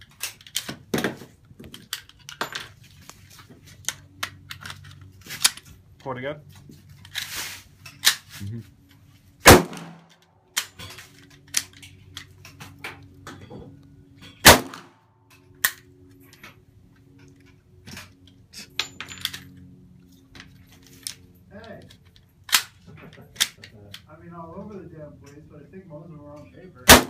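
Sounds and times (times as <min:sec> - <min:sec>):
rifle shots: 0:09.4 - 0:10.1, 0:14.4 - 0:14.9.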